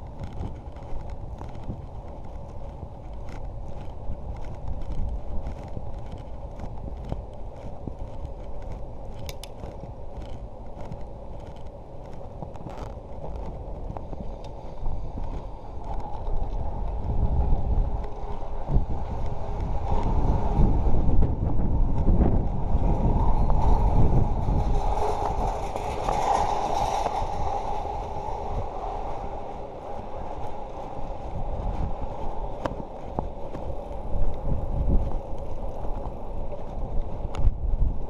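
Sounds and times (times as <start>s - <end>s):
bicycle tyres rolling on pavement: 0.0s - 38.0s
wind rumble on microphone: 0.0s - 38.0s
light regular clicks: 9.2s - 11.8s.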